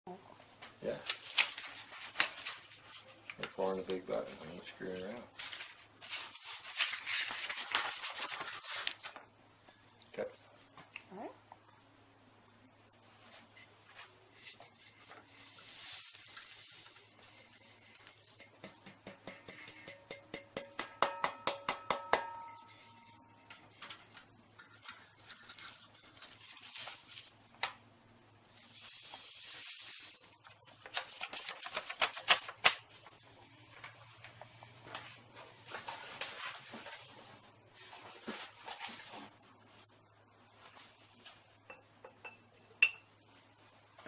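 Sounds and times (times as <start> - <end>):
taps on a metal pan: 18.4 - 22.6
soft rustle: 33.6 - 41.5.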